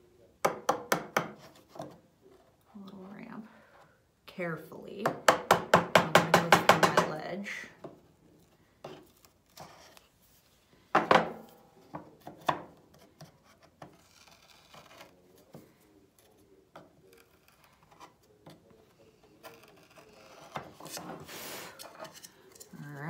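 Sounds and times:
chisel scraping wood board: 12.9 - 15.1, 16.8 - 22.3.

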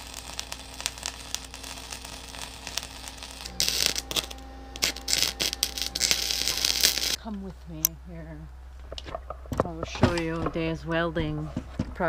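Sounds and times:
arc welder crackling: 0.0 - 7.2
steady low hum: 0.0 - 12.0.

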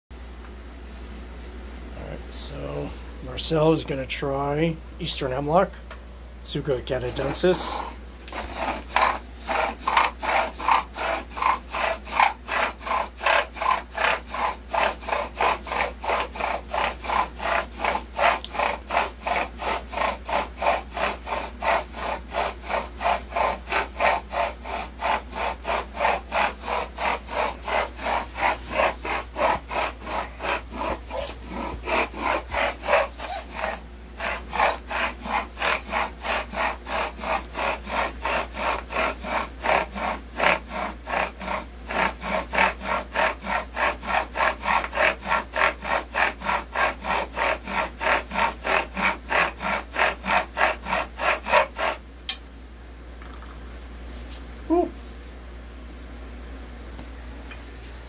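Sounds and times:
bow drill spindle grinding wood: 6.5 - 52.0.

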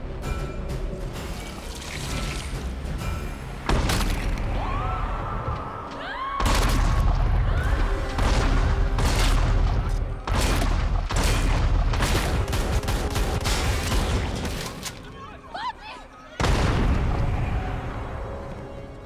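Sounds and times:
pistol and shotgun gunshots: 8.2 - 14.7.

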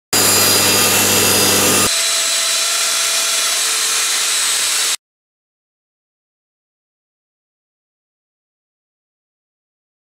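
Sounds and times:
table saw cutting plywood: 0.0 - 5.0
low motor hum: 0.2 - 1.9.

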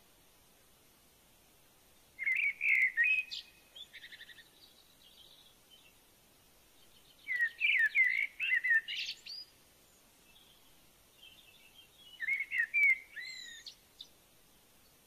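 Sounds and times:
bird twittering: 2.2 - 5.5, 7.2 - 9.5, 11.2 - 14.1
soft bird chirps: 2.2 - 15.0.

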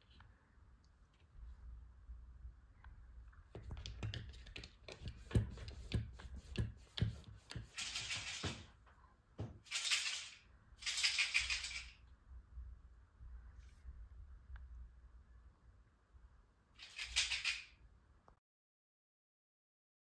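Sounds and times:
claws scraping: 6.9 - 8.7.

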